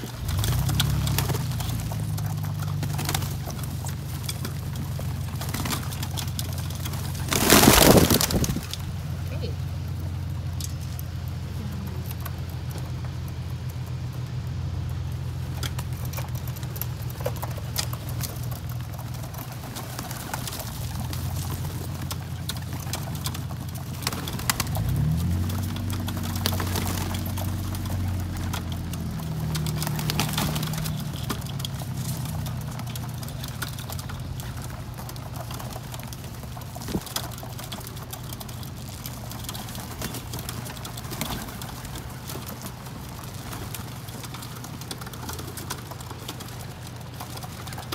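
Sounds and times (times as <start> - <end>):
wing flutters: 0.0 - 14.1, 15.1 - 47.9
pigeons pecking clicks: 0.0 - 47.9
pigeons cooing: 15.4 - 47.9.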